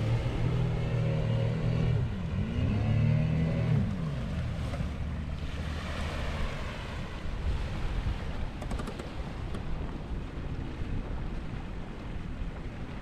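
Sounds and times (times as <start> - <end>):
small outboard motor: 0.0 - 13.0
small waves washing onto sand: 1.8 - 13.0.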